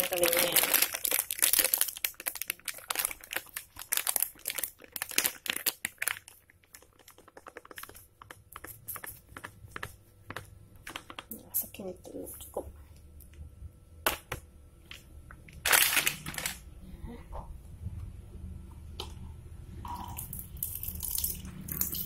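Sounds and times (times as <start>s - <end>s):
plastic bag crinkling: 0.0s - 9.4s, 15.5s - 16.7s.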